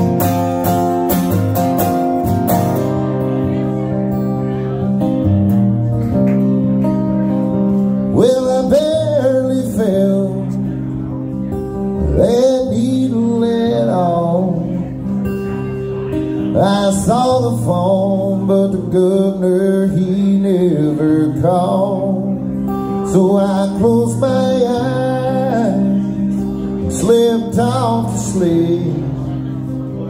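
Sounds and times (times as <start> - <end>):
acoustic guitar chords: 0.0 - 30.0
man singing: 8.0 - 30.0.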